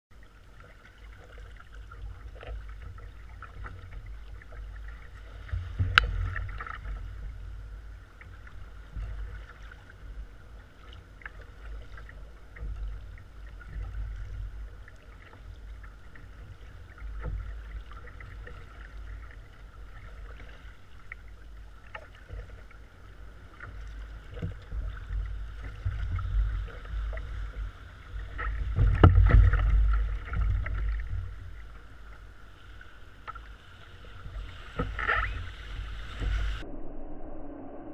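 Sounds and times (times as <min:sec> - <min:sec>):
paddle splashing water: 0:00.1 - 0:36.6
water slapping kayak hull: 0:00.1 - 0:36.6
surf washing: 0:00.2 - 0:37.9
wind rumble on microphone: 0:01.7 - 0:32.4, 0:33.7 - 0:37.9.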